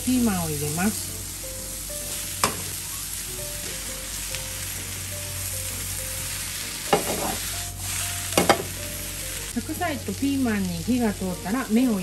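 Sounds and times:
vegetables sizzling in frying pan: 0:00.0 - 0:12.0
chopsticks clattering in pan: 0:06.9 - 0:07.4, 0:08.4 - 0:08.8.

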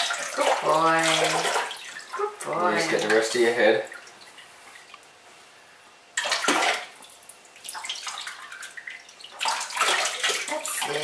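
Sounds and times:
bath water splashing: 0:00.0 - 0:05.0, 0:06.1 - 0:11.0.

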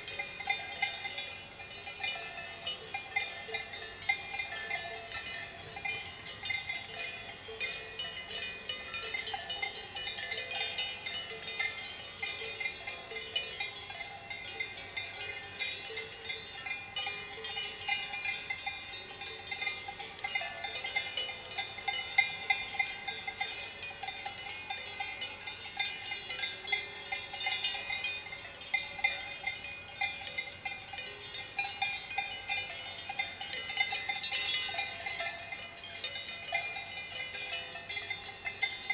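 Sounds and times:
cowbells clanking: 0:00.0 - 0:38.9.

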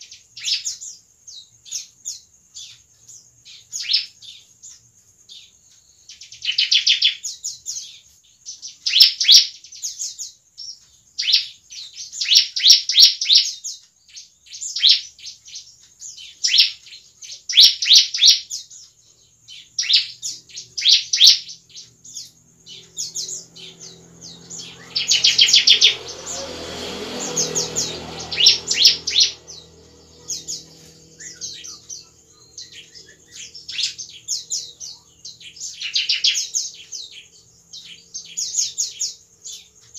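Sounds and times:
bird chirping rapidly: 0:00.0 - 0:39.9
low hum: 0:22.8 - 0:35.4.

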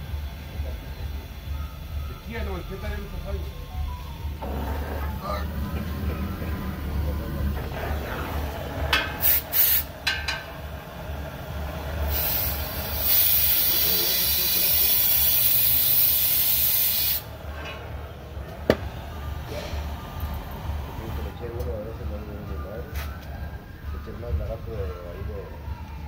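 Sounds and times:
gas hissing from torch: 0:07.1 - 0:17.4.

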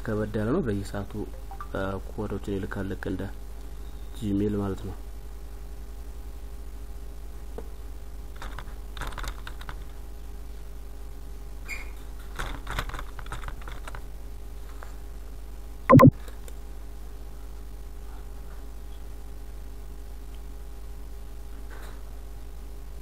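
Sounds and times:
faint steady hum: 0:00.0 - 0:23.0
loud buzzing blip: 0:15.9 - 0:16.1.

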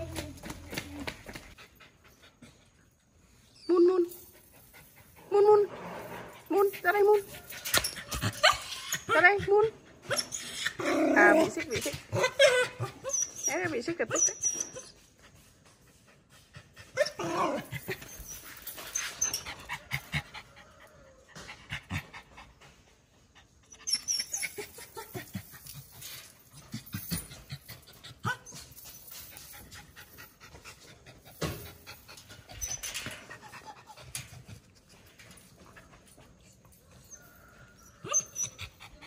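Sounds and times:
clicks and rustles of dogs moving: 0:24.6 - 0:37.3.

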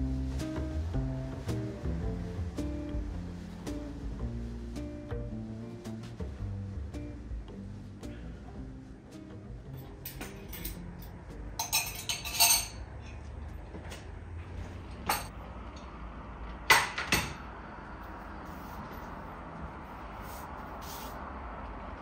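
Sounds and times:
dishes and cutlery clinking: 0:09.7 - 0:13.2, 0:15.0 - 0:15.3.

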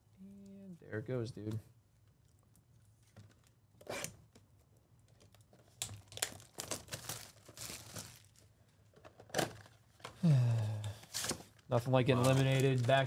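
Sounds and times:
wrapper crinkling and rustling: 0:05.1 - 0:08.5, 0:11.1 - 0:13.0
wrapper ripping: 0:05.3 - 0:08.4, 0:12.2 - 0:13.0.

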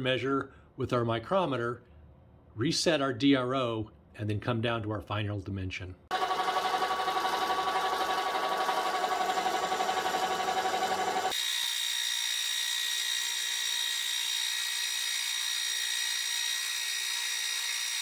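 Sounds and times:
lathe machine hum: 0:06.1 - 0:15.6.

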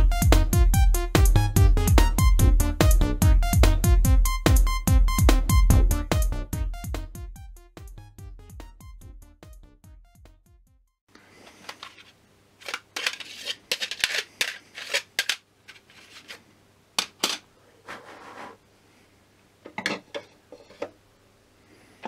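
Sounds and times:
record set on plastic turntable: 0:11.2 - 0:17.5
plastic toy records clacking: 0:11.6 - 0:16.4, 0:17.0 - 0:17.4.

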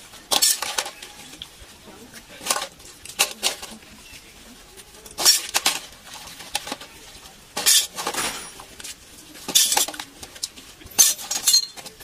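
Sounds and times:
dishes clinking in metal basin: 0:07.6 - 0:08.7, 0:09.5 - 0:10.1, 0:10.9 - 0:12.0.

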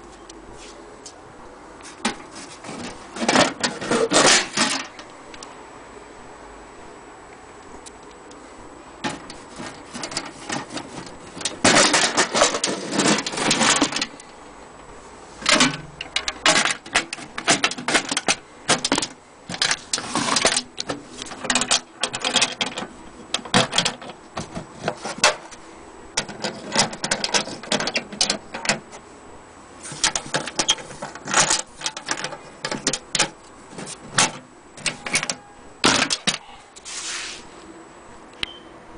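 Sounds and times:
metal clattering and rattling: 0:02.0 - 0:05.0, 0:09.0 - 0:14.3, 0:15.4 - 0:25.6, 0:26.2 - 0:28.9, 0:29.9 - 0:36.4.

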